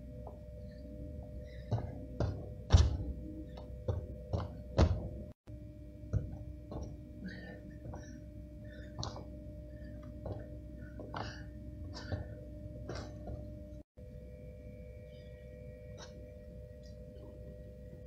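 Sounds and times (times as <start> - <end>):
faint steady hum: 0.0 - 18.0
light quick foot thuds: 1.6 - 5.3
jump landings on gym mats: 1.7 - 5.3.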